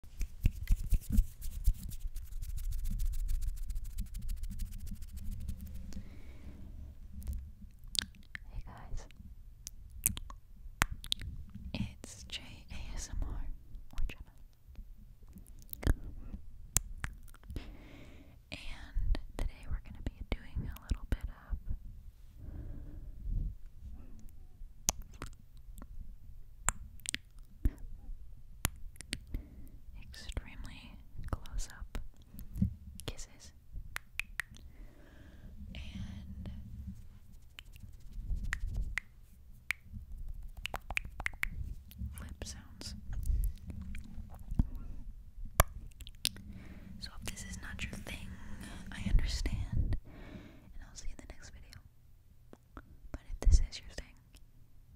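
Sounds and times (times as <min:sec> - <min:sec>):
fingers brushing microphone clicks: 0:00.0 - 0:05.9, 0:37.3 - 0:39.1.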